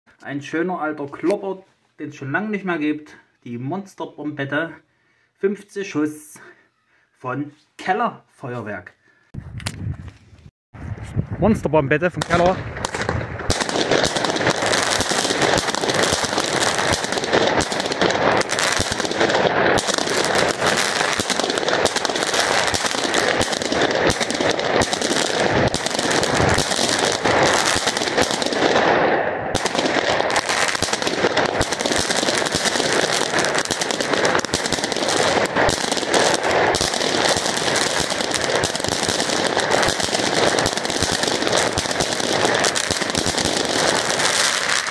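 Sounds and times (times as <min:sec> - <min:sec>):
crackling firework bursts: 0:12.1 - 0:44.9
fireworks firing: 0:12.1 - 0:44.9.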